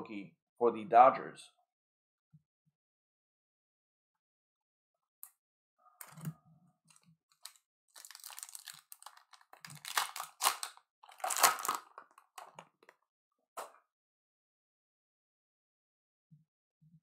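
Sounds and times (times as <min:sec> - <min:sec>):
wrapper tearing and crinkling: 0:07.4 - 0:12.9.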